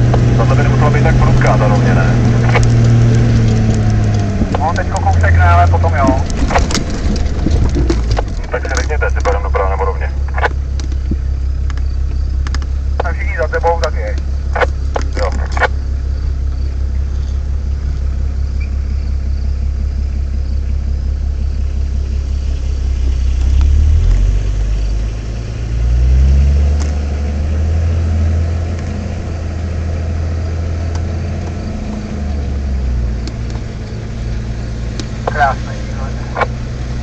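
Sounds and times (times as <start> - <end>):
diesel engine running at low revs: 0.0 - 37.0.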